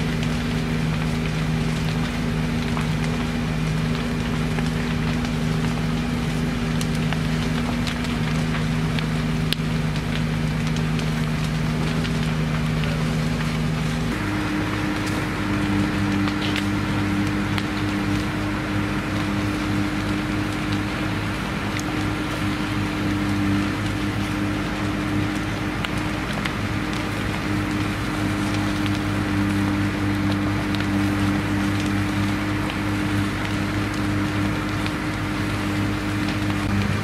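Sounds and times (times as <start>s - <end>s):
burning timber cracking and popping: 0.0s - 37.0s
engine running: 0.0s - 37.0s.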